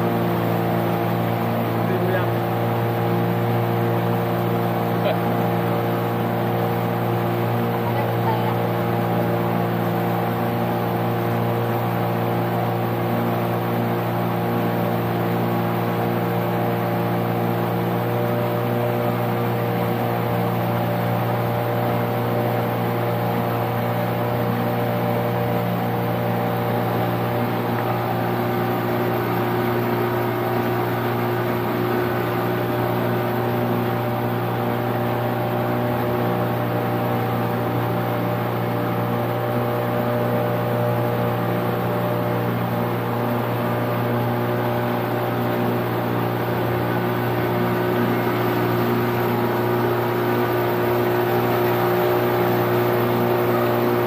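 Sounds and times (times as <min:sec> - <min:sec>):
outboard motor running: 0:00.0 - 0:54.0
hull rushing through water: 0:25.3 - 0:54.0.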